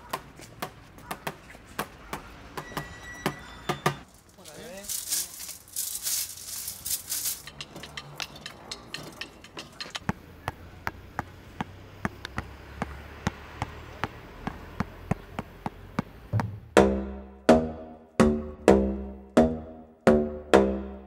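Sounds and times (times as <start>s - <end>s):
basketball bouncing on hard court: 10.0s - 17.0s.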